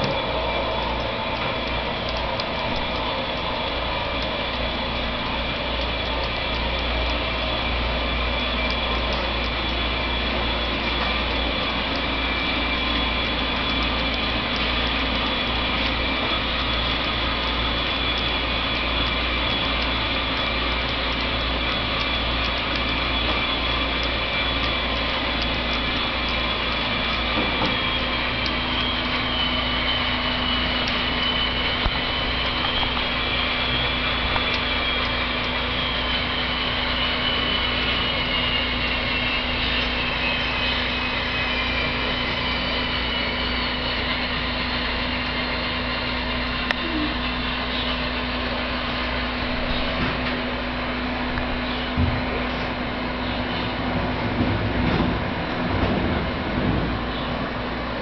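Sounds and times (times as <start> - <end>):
model train wheels clattering: 0.0 - 40.8
high wavering whine: 0.0 - 58.0.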